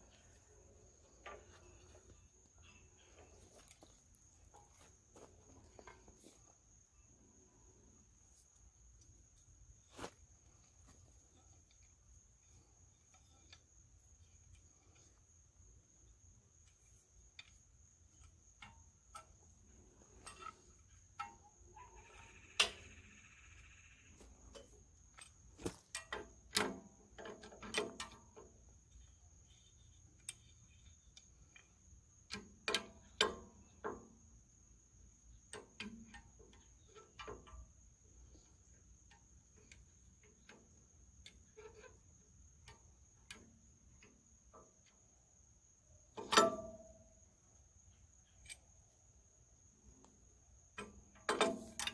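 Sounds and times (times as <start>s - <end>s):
metal tools clinking and knocking: 46.2s - 46.8s.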